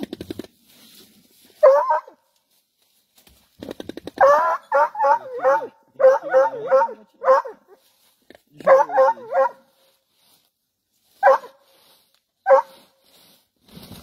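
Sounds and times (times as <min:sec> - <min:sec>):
dogs barking and yelping: 0:01.6 - 0:02.2, 0:04.2 - 0:07.6, 0:08.6 - 0:09.6, 0:11.2 - 0:11.6, 0:12.5 - 0:12.8.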